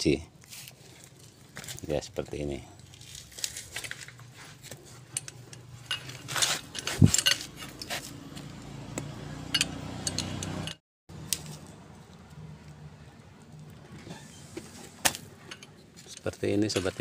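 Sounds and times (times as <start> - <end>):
wrench clinking on bolts: 5.1 - 8.0, 9.5 - 10.8.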